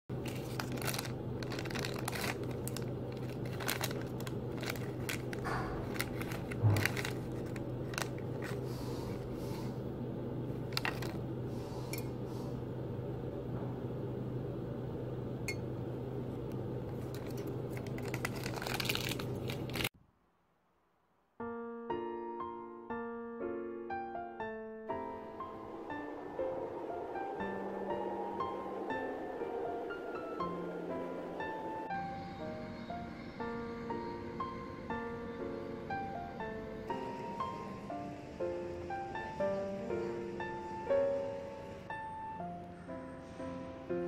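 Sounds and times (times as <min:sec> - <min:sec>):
soft piano music: 0:00.1 - 0:14.5, 0:21.4 - 0:44.0
steady low hum: 0:00.1 - 0:19.9
packaging rustling and light clicks: 0:00.2 - 0:09.3, 0:10.6 - 0:11.2, 0:16.9 - 0:19.9.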